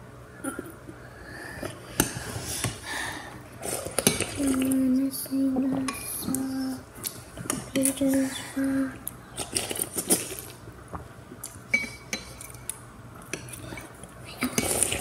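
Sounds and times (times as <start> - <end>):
child humming: 8.0 - 9.0.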